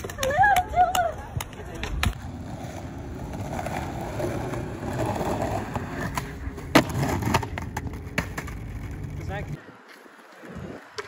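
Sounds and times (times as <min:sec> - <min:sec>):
skateboard wheels rolling on concrete: 0:00.0 - 0:11.0
skateboard landing clack: 0:06.1 - 0:09.0.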